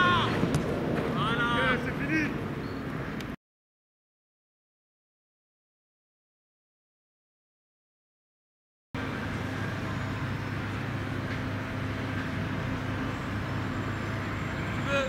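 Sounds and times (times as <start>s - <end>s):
low outdoor rumble: 9.0s - 15.0s.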